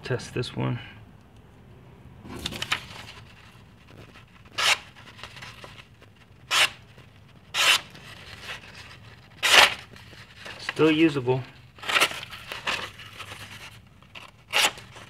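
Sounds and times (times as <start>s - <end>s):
paper rustling: 2.3s - 15.0s
knife slicing paper: 4.4s - 5.6s, 6.4s - 6.8s, 7.5s - 11.0s, 11.8s - 15.0s.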